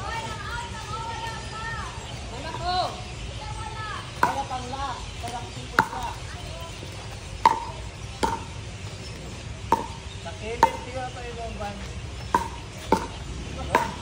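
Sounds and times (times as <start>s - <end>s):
plastic ball struck by paddles: 4.2s - 4.5s, 5.3s - 6.2s, 7.4s - 8.6s, 9.7s - 10.0s, 10.6s - 11.0s, 12.3s - 14.0s.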